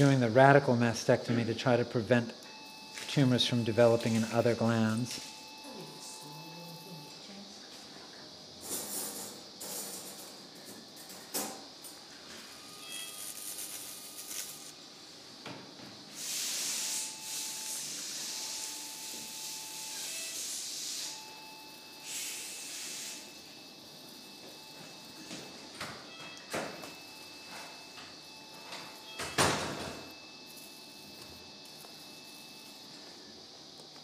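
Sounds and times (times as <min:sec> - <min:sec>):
steady beep-like tone: 0:00.0 - 0:07.2, 0:16.5 - 0:33.0
electrocautery sizzling: 0:12.4 - 0:15.2.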